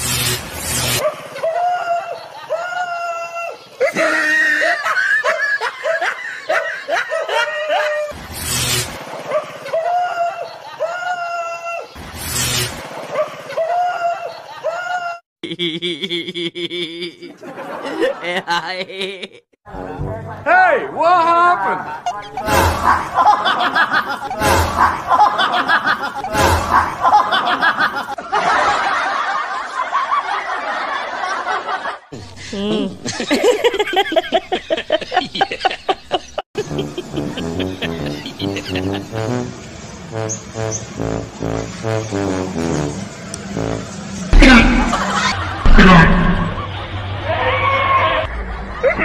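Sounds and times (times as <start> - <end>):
high-pitched voice laughing: 1.0 - 8.2, 13.5 - 19.4, 21.7 - 28.0, 32.3 - 39.1, 44.4 - 46.7
whoosh with low thump: 44.4 - 46.7
thud: 45.6 - 46.6.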